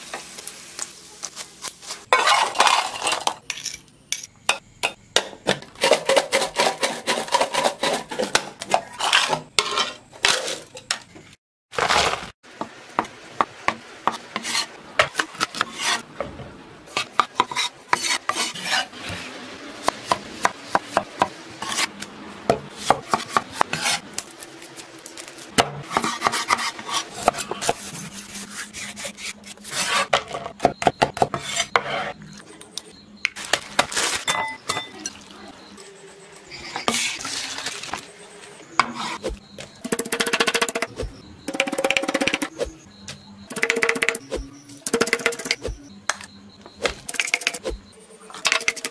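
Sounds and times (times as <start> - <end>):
bowls clinking: 34.3 - 35.3.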